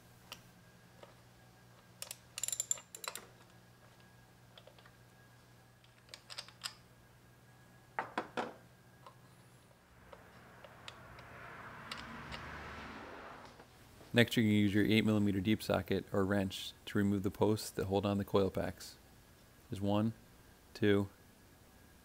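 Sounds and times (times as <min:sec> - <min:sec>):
socket ratchet clicking: 0:02.0 - 0:03.2.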